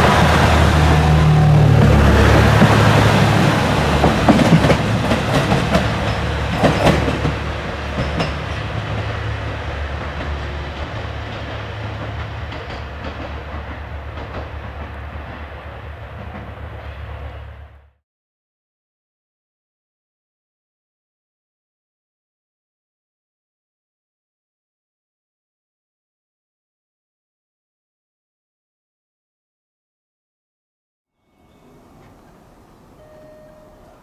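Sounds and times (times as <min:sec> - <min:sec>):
train drone on rails: 0:00.0 - 0:18.0, 0:31.3 - 0:34.0.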